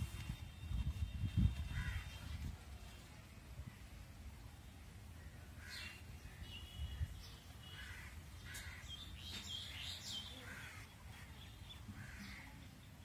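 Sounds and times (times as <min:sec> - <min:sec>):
crows cawing: 0:07.7 - 0:08.9, 0:10.4 - 0:11.4, 0:12.0 - 0:12.5.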